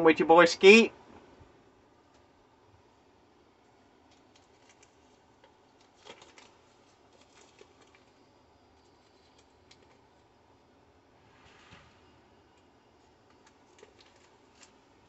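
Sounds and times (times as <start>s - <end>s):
paper wrapper crinkling: 4.0s - 10.2s, 13.2s - 15.0s.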